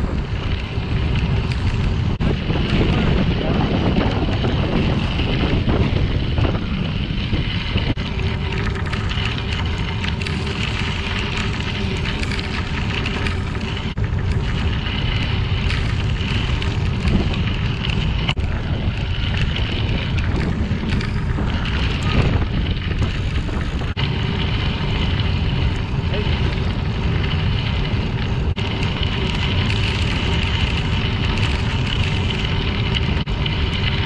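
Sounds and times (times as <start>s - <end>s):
tyres rolling on gravel trail: 0.0s - 34.0s
wind buffeting microphone: 0.0s - 34.0s.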